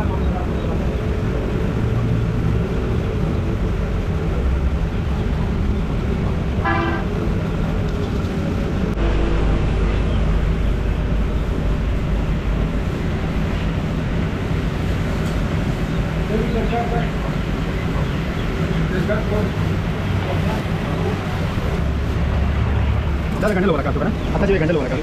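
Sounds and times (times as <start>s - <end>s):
road traffic rumble: 0.0s - 25.0s
vehicle horn toot: 6.6s - 7.2s.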